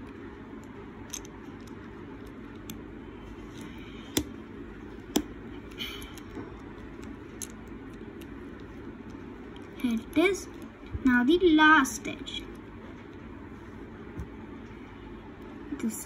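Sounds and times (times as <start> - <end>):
low background noise: 0.0 - 16.0
plastic puzzle cube clicking: 6.9 - 8.3.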